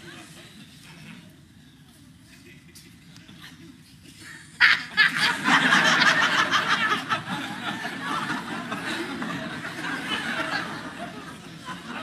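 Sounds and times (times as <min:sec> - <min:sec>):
audience laughing: 0:04.6 - 0:12.0.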